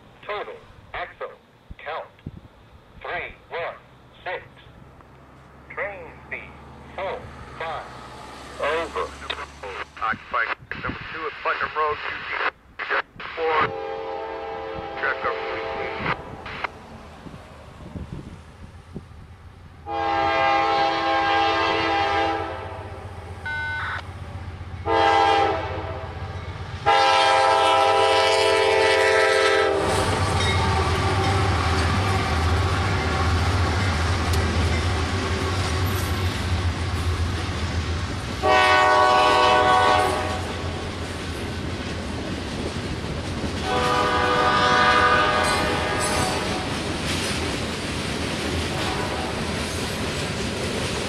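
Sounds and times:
locomotives rumbling past: 1.9s - 12.4s, 13.6s - 51.0s
locomotive air horn blasts: 13.6s - 16.3s, 19.8s - 23.8s, 24.8s - 26.2s, 26.8s - 30.0s, 38.4s - 40.6s, 43.6s - 46.6s, 48.7s - 49.4s.

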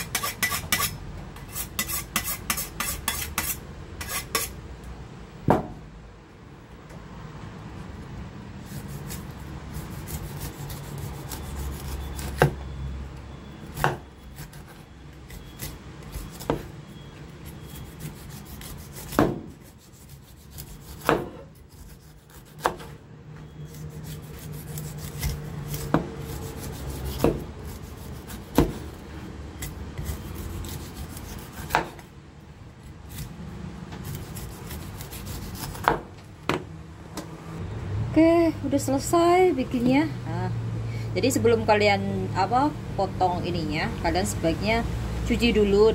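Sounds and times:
knife scraping pineapple skin: 0.0s - 4.6s, 8.6s - 12.6s, 13.6s - 22.9s, 23.5s - 32.1s, 32.8s - 33.4s, 34.0s - 36.0s.

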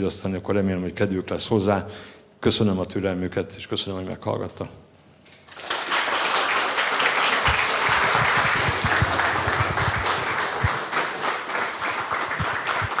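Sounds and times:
audience clapping: 5.3s - 13.0s.

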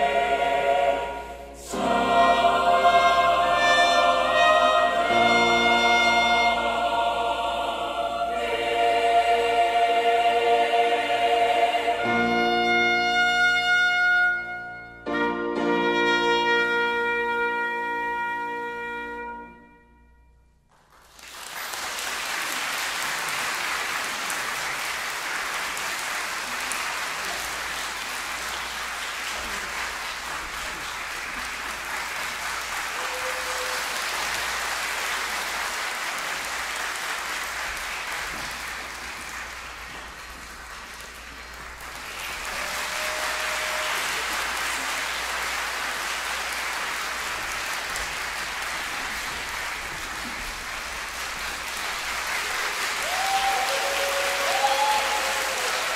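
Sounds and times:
choir final chord: 0.0s - 13.4s
audience applauding: 20.7s - 55.9s.

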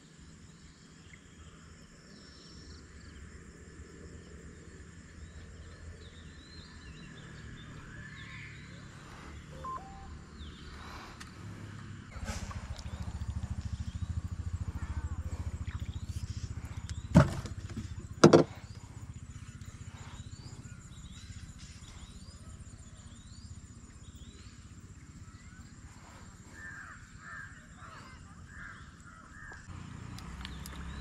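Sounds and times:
birds chirping: 5.3s - 31.0s
low rumble: 8.9s - 22.8s
sharp knocks: 17.1s - 18.5s.

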